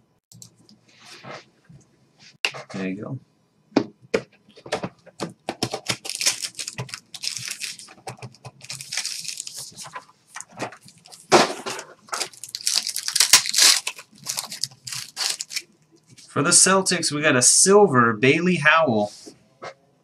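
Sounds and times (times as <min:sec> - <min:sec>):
wrapper tearing and crinkling: 0:05.7 - 0:15.7.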